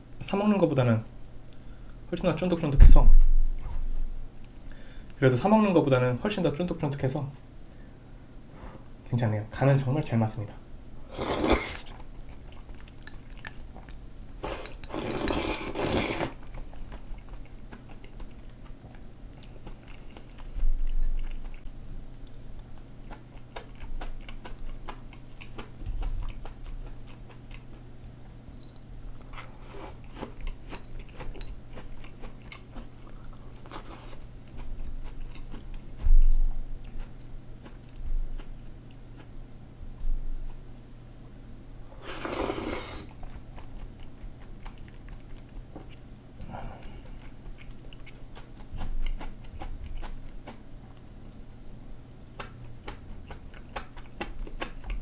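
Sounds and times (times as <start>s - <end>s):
slurping noodles: 11.1s - 11.9s, 14.4s - 16.4s, 42.0s - 43.1s
wet chewing: 11.2s - 27.9s, 28.6s - 39.3s, 42.0s - 51.4s, 52.1s - 55.0s.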